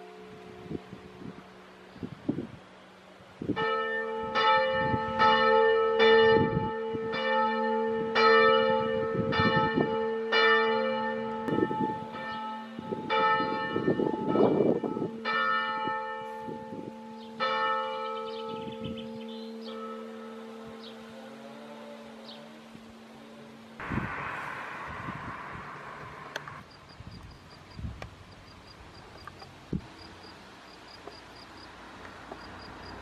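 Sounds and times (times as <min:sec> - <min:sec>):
church bells ringing: 0:03.5 - 0:21.4
steady ringing hum: 0:23.8 - 0:28.7.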